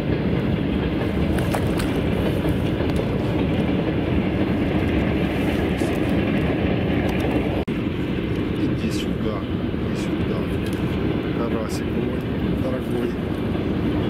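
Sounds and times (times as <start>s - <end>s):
steady low rumbling: 0.0s - 14.0s
fish splashing at surface: 1.3s - 2.4s.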